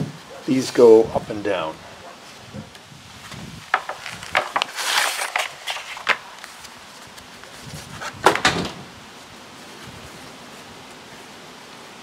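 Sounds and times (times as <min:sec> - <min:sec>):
paper and cloth rustling: 0:03.2 - 0:08.2.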